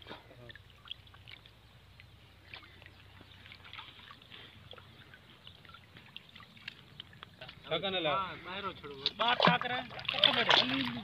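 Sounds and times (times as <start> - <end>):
water dripping from net: 0.4 - 7.7.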